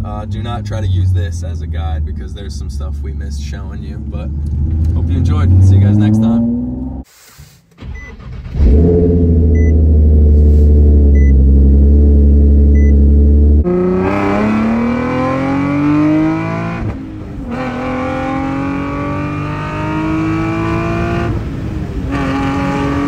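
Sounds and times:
car engine revving: 0.0s - 7.1s, 7.8s - 23.0s
car accelerating with upshifts: 3.9s - 7.1s, 7.8s - 23.0s.

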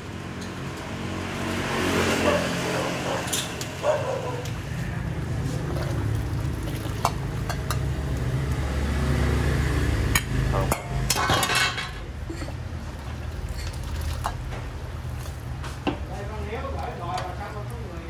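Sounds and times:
broth pouring splash: 5.3s - 9.0s, 12.8s - 15.5s
metal ladle clinking: 10.2s - 12.1s.

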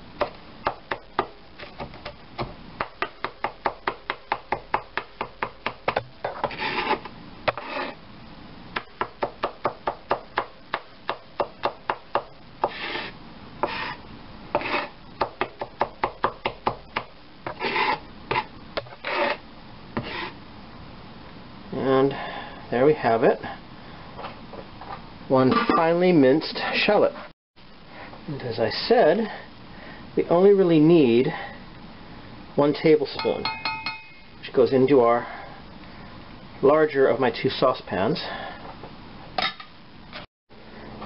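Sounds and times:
knife scraping board: 6.2s - 8.0s, 12.6s - 15.0s, 17.5s - 19.4s, 20.0s - 20.4s.

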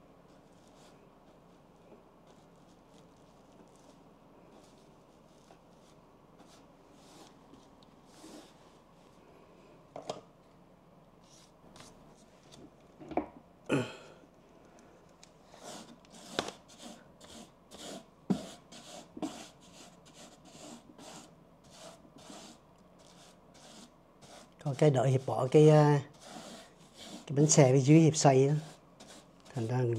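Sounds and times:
brush scrapes: 15.5s - 29.9s
paint brush strokes: 15.5s - 29.9s.

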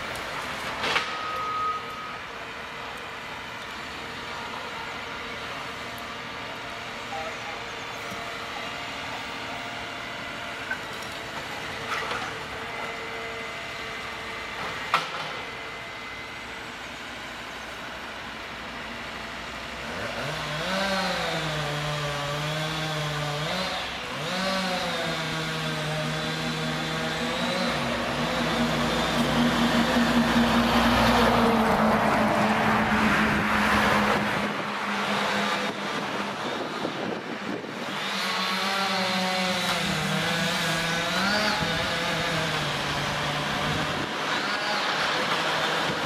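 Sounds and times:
passing vehicle: 27.9s - 38.4s.

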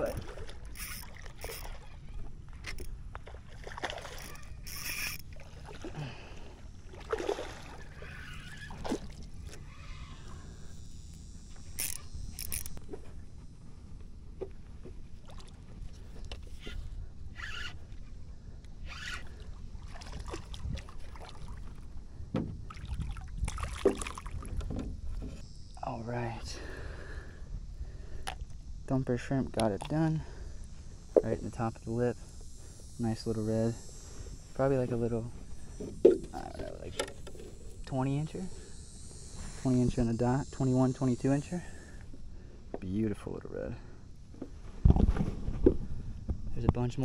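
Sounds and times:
water splashing and sloshing: 0.0s - 9.7s, 14.4s - 16.9s, 19.2s - 25.4s.

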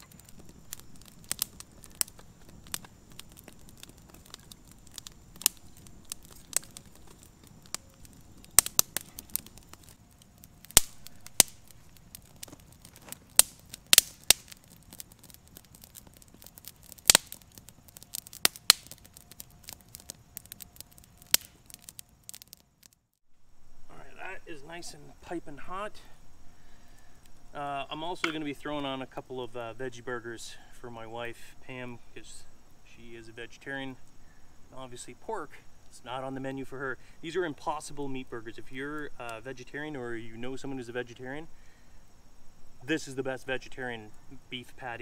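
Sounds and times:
sharp wood pops: 0.0s - 23.0s
kindling fire crackling: 0.0s - 45.0s.

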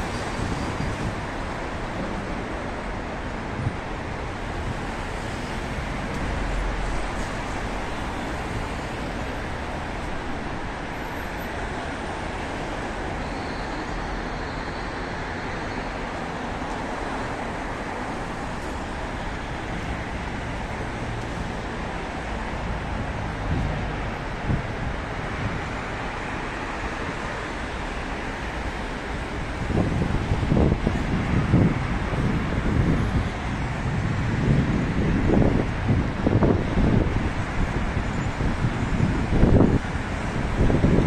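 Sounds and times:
city road traffic: 0.0s - 41.0s.

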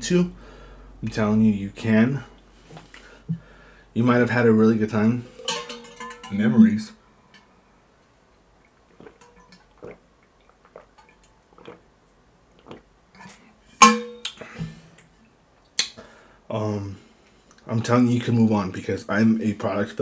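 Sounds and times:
man swallowing water: 8.9s - 11.9s, 12.5s - 13.3s.

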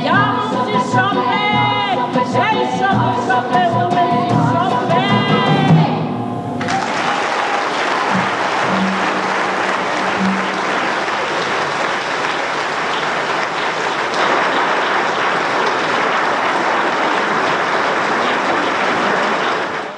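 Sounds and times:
audience applauding: 6.6s - 19.9s.

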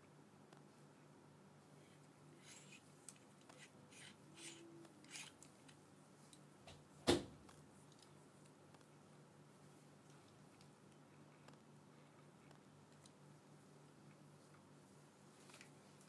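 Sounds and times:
soft scrapes and rubs: 1.8s - 5.4s.

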